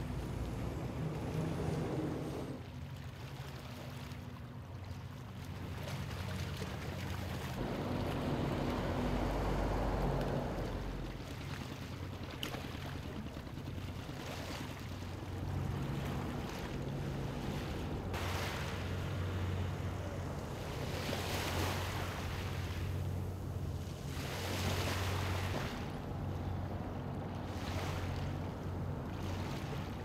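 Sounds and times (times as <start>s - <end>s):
boat engines droning: 0.0s - 30.0s
water washing: 6.1s - 23.4s.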